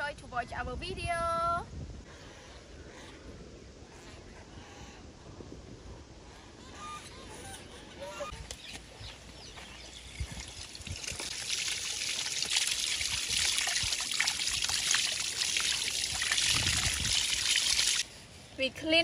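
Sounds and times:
tap water splashing: 10.2s - 18.0s.

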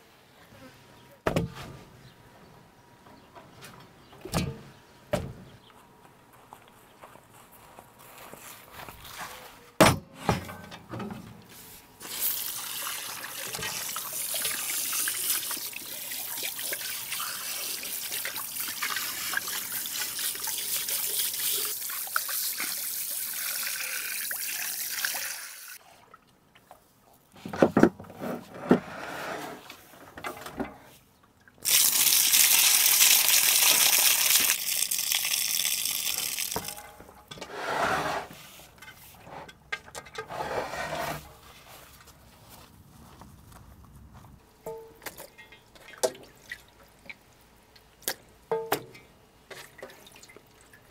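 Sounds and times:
hose water running into metal basin: 12.0s - 25.8s, 31.6s - 36.9s.

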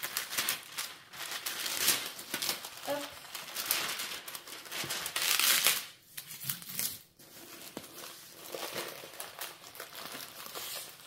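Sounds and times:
plastic film crinkling: 0.0s - 11.0s.

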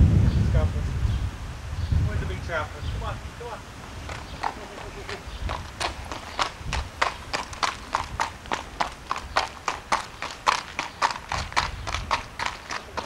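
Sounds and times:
hooves clip-clopping on tarmac: 4.0s - 13.0s.

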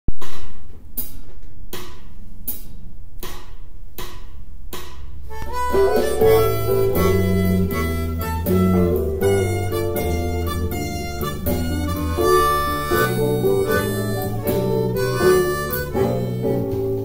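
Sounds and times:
bass notes: 2.4s - 17.0s
blues backing track: 5.2s - 17.0s
harmonica playing blues phrases: 5.3s - 17.0s.

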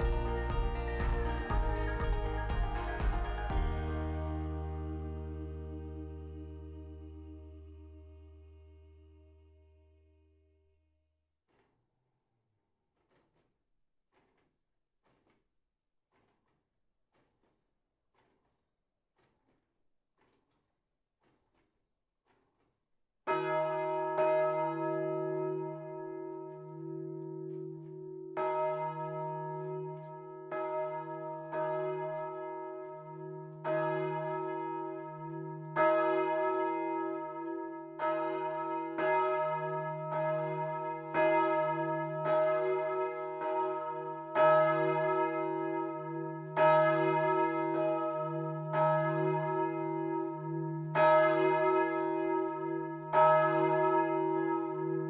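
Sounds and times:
church bells pealing: 0.0s - 6.6s, 23.3s - 55.0s.

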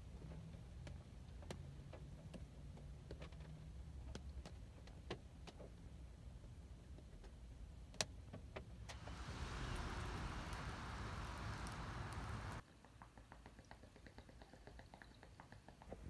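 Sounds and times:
faint low rumble: 8.9s - 12.6s
raindrops tapping on window: 8.9s - 12.6s.

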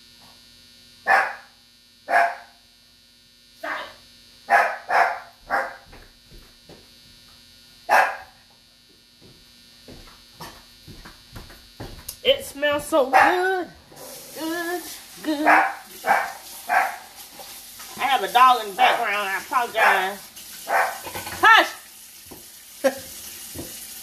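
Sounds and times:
faint steady hum: 0.0s - 23.7s
dog barking: 1.1s - 2.6s, 3.6s - 5.9s, 7.9s - 8.4s, 13.1s - 13.6s, 15.4s - 17.1s, 19.8s - 21.1s.

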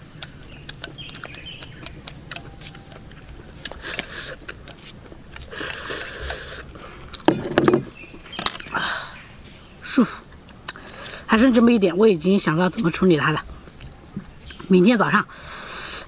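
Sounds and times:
slurping and chewing: 0.0s - 7.3s
high insect buzz: 0.0s - 16.0s.

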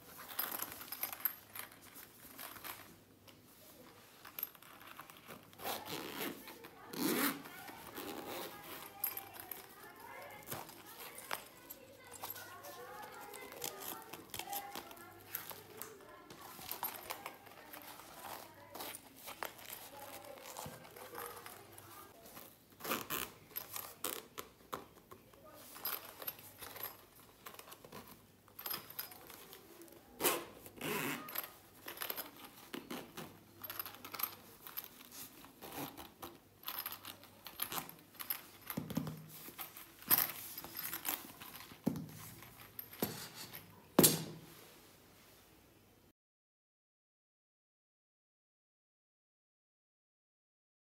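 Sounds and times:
metal zip pulls clicking: 4.5s - 9.8s, 22.8s - 24.2s, 30.2s - 39.0s.

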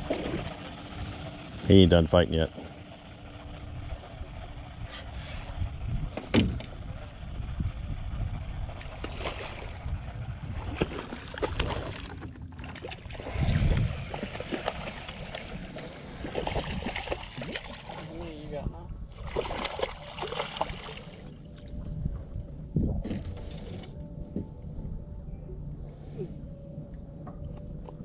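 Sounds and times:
low rumble: 0.0s - 28.0s
fish splashing at the surface: 8.9s - 9.8s, 10.7s - 18.1s, 19.2s - 21.2s.

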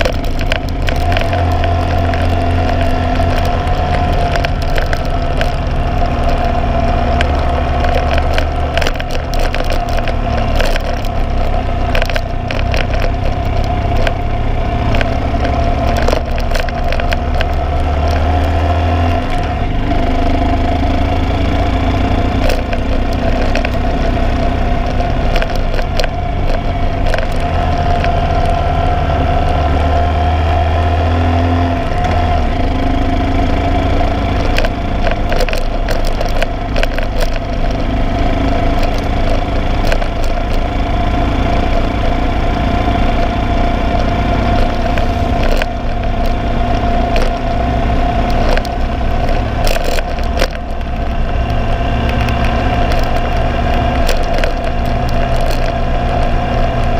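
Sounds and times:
motorcycle engine drone: 0.0s - 56.9s.

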